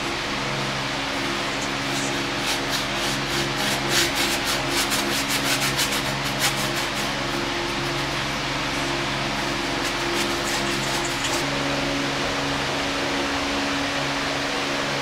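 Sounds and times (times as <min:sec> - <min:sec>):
steady low hum: 0:00.0 - 0:15.0
paintbrush scrubbing on canvas: 0:01.6 - 0:08.7, 0:09.3 - 0:11.4.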